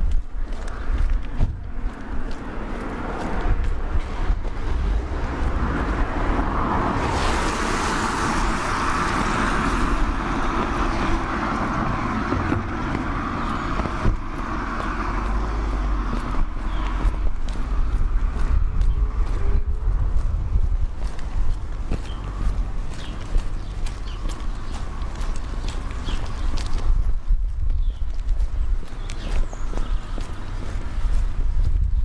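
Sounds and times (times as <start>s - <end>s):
low street rumble: 0.0s - 32.0s
car driving past: 2.6s - 20.3s.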